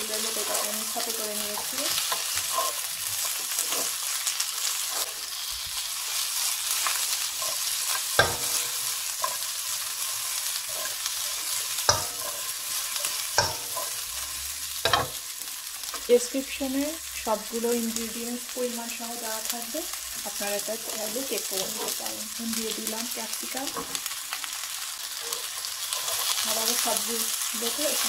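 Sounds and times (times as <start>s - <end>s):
vegetables sizzling in hot oil: 0.0s - 28.0s
spatula scraping a wok: 0.2s - 16.1s, 21.1s - 22.2s, 24.7s - 28.0s.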